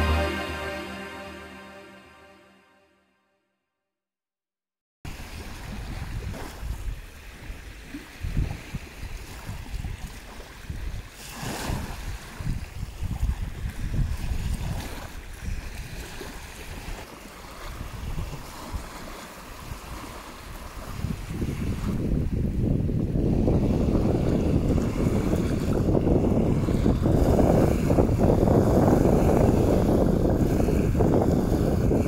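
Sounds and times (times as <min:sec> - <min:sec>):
music: 0:00.0 - 0:03.0
small waves breaking on beach: 0:05.1 - 0:32.0
wind buffeting microphone: 0:08.2 - 0:17.0, 0:17.6 - 0:32.0.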